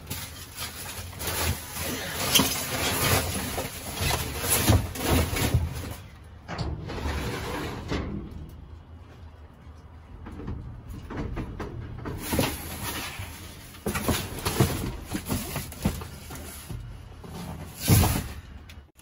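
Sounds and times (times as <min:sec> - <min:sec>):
cardboard and styrofoam rummaging: 0:00.0 - 0:06.2, 0:12.1 - 0:19.0.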